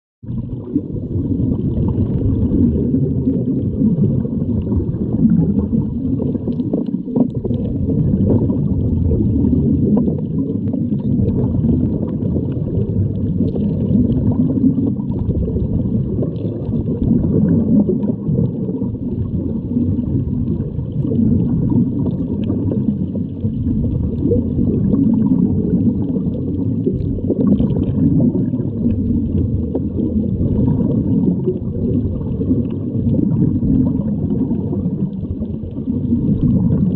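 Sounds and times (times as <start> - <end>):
gurgling exhaled bubbles: 0.2 - 36.9
muffled underwater rumble: 0.2 - 36.9.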